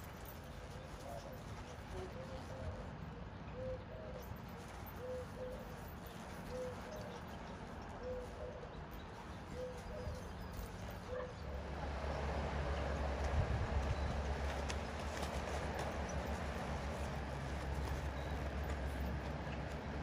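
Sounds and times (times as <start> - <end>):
bird cooing: 5.0 - 5.7, 6.5 - 7.2, 8.0 - 8.6, 9.5 - 10.3.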